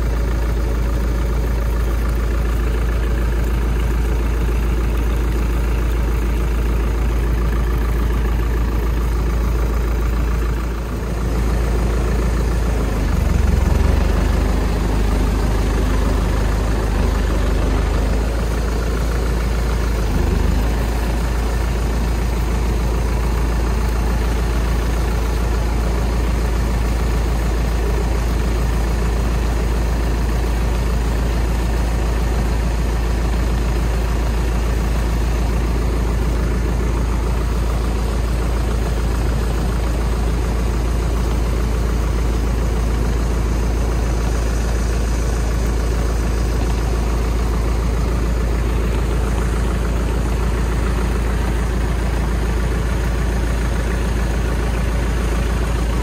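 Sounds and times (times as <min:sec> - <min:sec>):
engine idling: 0:00.0 - 0:56.0.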